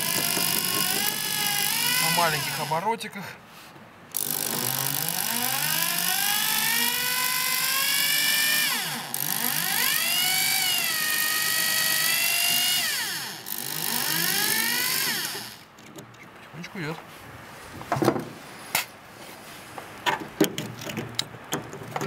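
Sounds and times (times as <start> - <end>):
drill motor whining: 0.0 - 2.8, 4.2 - 15.7.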